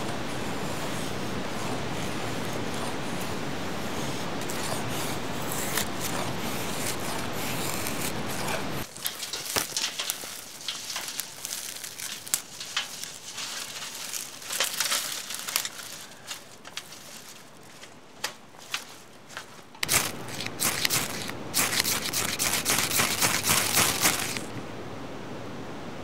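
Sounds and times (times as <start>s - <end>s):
dry twigs crackling and snapping: 5.5s - 24.6s.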